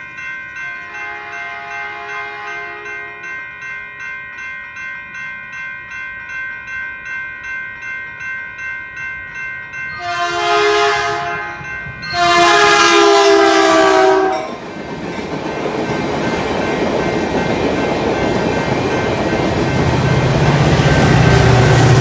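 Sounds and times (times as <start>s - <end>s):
railroad crossing bell ringing: 0.0s - 22.0s
train horn blasts: 0.7s - 3.2s, 10.0s - 14.6s
passing train rumble: 9.0s - 22.0s.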